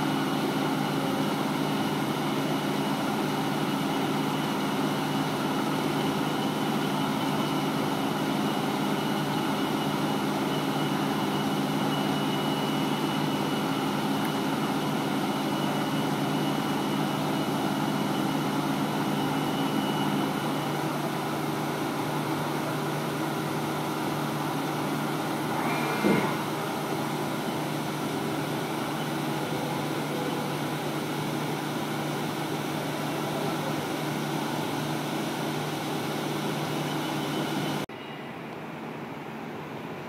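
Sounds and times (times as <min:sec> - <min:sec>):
loud knock: 0:26.0 - 0:26.4.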